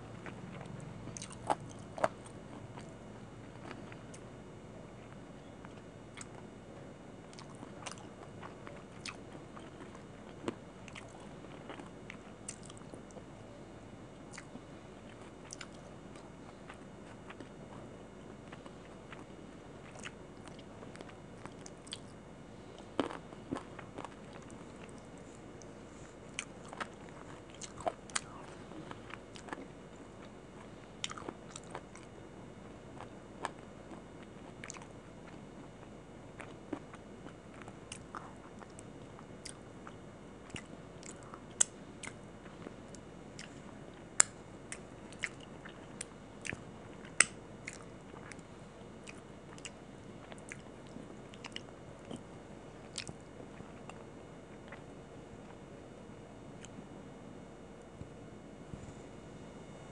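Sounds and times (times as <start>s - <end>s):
chewing: 0.2s - 4.2s, 7.3s - 13.3s, 14.3s - 22.2s, 22.8s - 32.1s, 33.0s - 35.4s, 36.4s - 48.4s, 49.0s - 54.9s.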